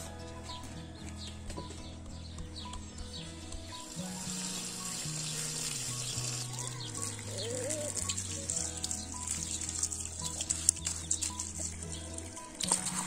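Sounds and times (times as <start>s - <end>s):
hose water splashing: 3.6s - 13.0s.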